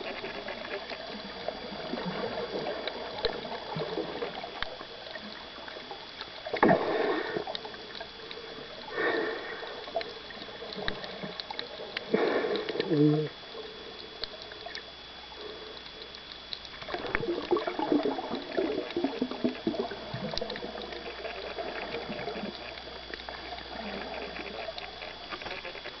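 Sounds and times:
underwater gurgling and bubbling: 0.0s - 26.0s
small clicks: 9.8s - 13.0s, 14.0s - 15.0s, 15.7s - 17.6s, 20.2s - 26.0s.

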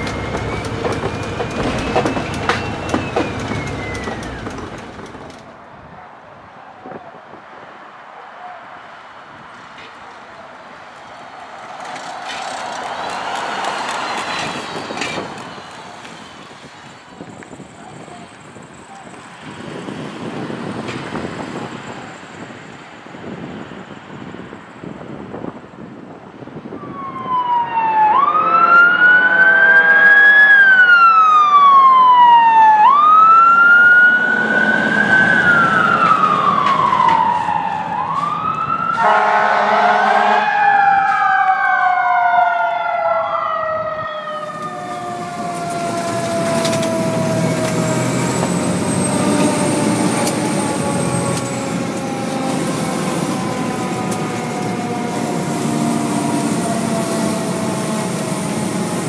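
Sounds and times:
engine rumbling: 0.0s - 6.0s, 44.4s - 59.0s
emergency sirens wailing: 0.0s - 23.6s, 26.6s - 59.0s
horn blast: 39.0s - 40.6s.

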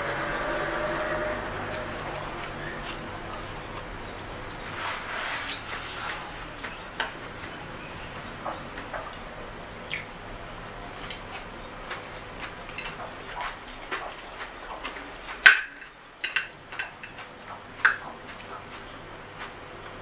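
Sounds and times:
mouth chewing: 1.2s - 4.8s, 5.6s - 20.0s
fork scraping on plate: 4.6s - 6.5s.

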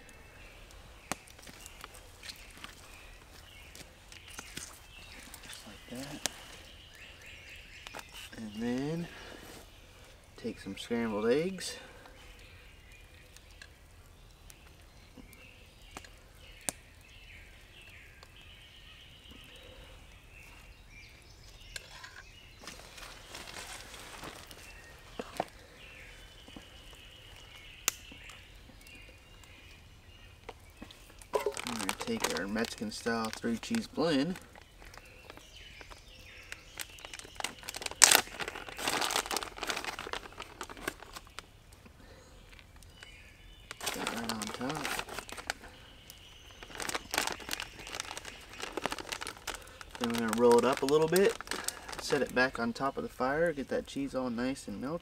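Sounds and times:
sharp loud plastic crackle: 31.2s - 41.4s, 43.7s - 52.4s
plastic bag crinkling: 31.3s - 41.4s, 43.7s - 45.7s, 46.3s - 52.6s.

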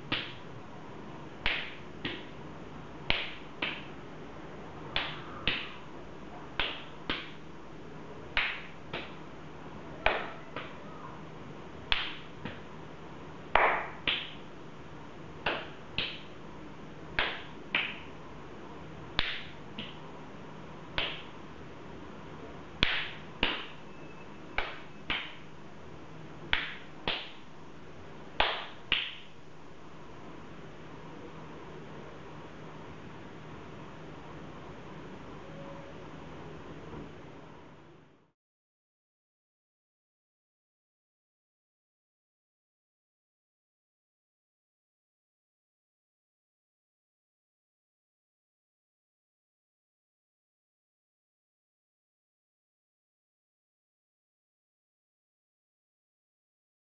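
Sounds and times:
slaps to the face: 0.1s - 0.4s, 1.4s - 2.3s, 3.1s - 3.9s, 5.0s - 5.8s, 6.6s - 7.4s, 8.4s - 9.2s, 11.9s - 12.6s, 13.5s - 14.4s, 15.4s - 16.3s, 17.2s - 18.1s, 19.2s - 20.0s, 21.0s - 21.3s, 22.8s - 23.8s, 24.6s - 25.4s, 26.5s - 27.4s, 28.4s - 29.3s.

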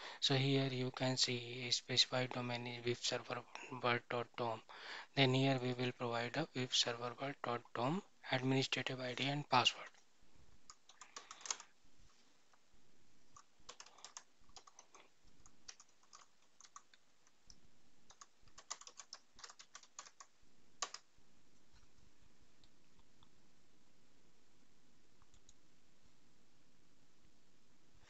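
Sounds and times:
computer keyboard typing: 10.7s - 11.7s, 13.3s - 21.1s.

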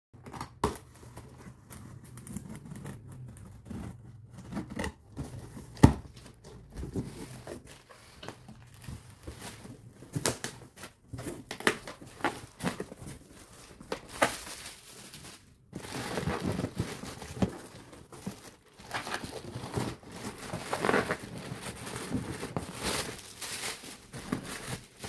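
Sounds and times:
plastic packing crinkling: 0.5s - 25.0s
cardboard flaps rustling: 15.8s - 25.0s.

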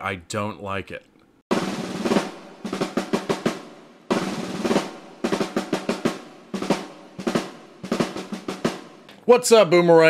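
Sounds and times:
snare drum rolls: 1.5s - 9.1s.

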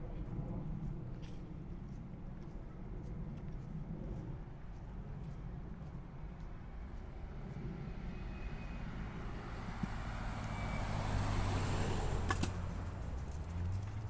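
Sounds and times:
low engine hum: 0.0s - 14.0s
bus passing by: 6.1s - 14.0s.

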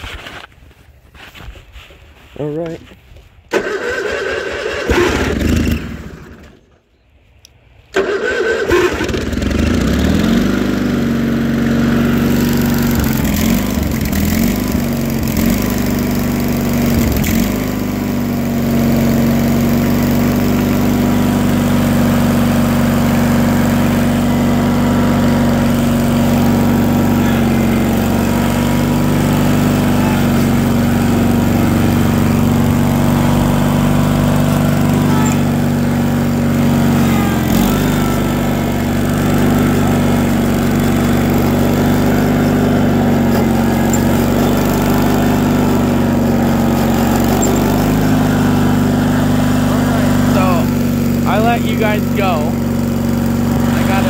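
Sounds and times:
tractor engine starting and running: 0.0s - 54.0s.

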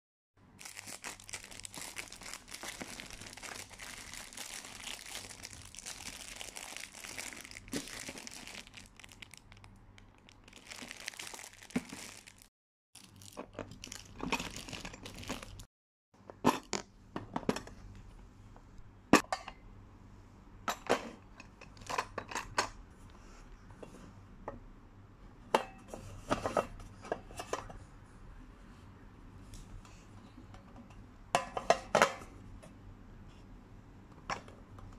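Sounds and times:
plastic wrap crinkling: 0.6s - 15.7s.

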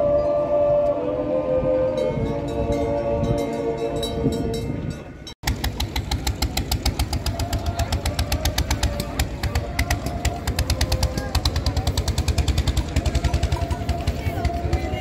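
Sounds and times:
men's choir singing chord: 0.0s - 4.3s
engine knocking: 5.4s - 15.0s.

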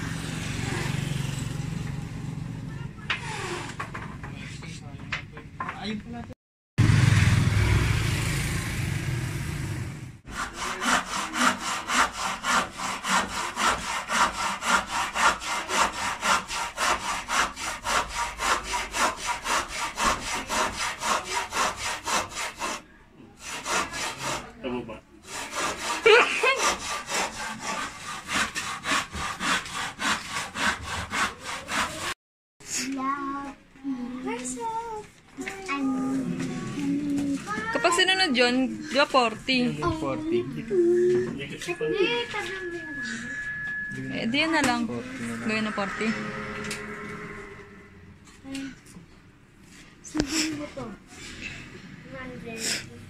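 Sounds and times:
hand saw cutting wood: 10.3s - 24.6s, 25.2s - 32.2s.

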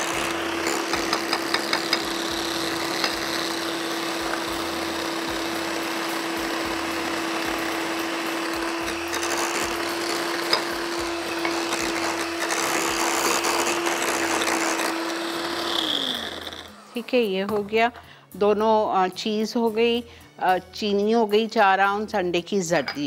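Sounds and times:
electric hand mixer whirring: 0.0s - 17.3s.

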